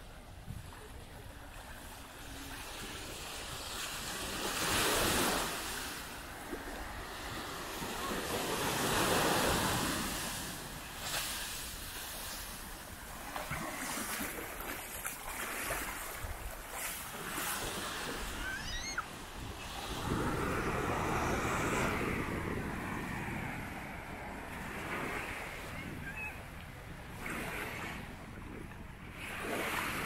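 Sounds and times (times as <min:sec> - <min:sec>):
wind rumble on microphone: 0:00.0 - 0:03.7, 0:18.0 - 0:30.0
sea waves breaking on beach: 0:00.9 - 0:30.0.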